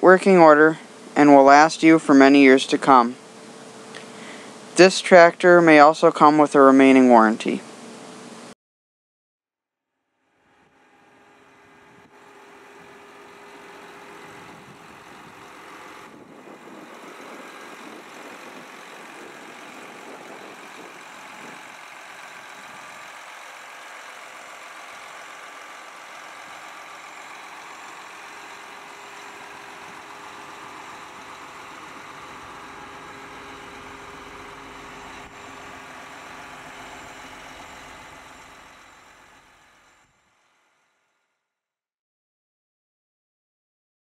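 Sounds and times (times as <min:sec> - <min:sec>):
diesel engine idling: 0:10.6 - 0:40.8.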